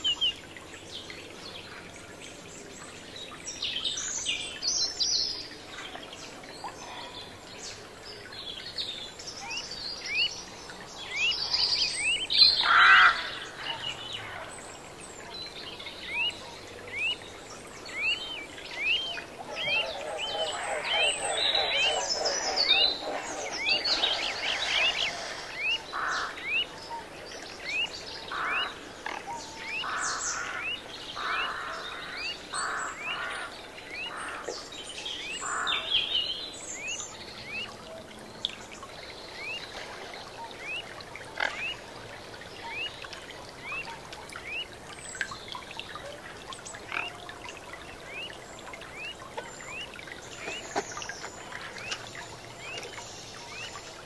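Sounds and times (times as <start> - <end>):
faint hiss: 3.6 - 33.6
birds chirping: 8.5 - 37.8, 38.5 - 54.0.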